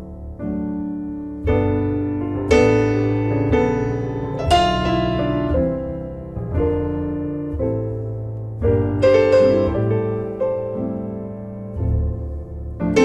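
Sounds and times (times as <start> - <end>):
slow piano chords: 0.0 - 13.0.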